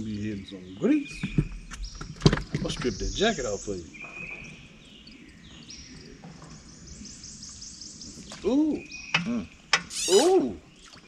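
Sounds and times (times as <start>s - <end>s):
man exclaiming ooh: 10.1s - 10.6s.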